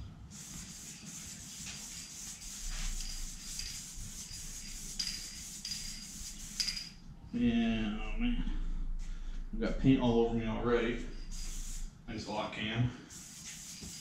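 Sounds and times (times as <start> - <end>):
spray paint can hissing: 0.3 - 6.9, 11.3 - 11.8, 13.2 - 14.0.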